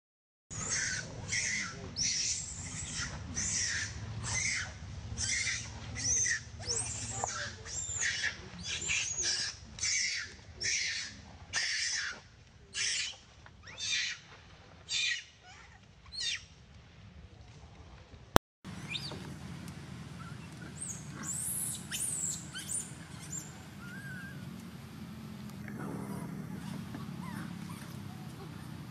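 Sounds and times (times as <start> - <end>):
baby monkey screaming: 0.5 - 14.2, 14.9 - 16.4, 20.2 - 24.4.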